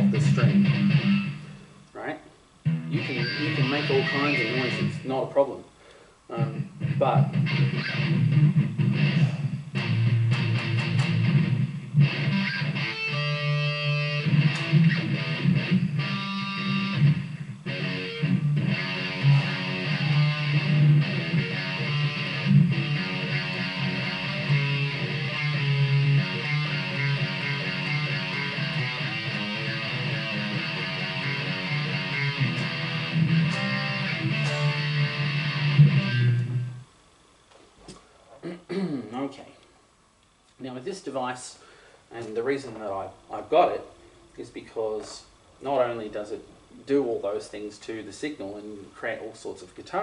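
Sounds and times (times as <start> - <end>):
distorted electric guitar: 0.0 - 1.8, 2.6 - 5.3, 6.3 - 37.0.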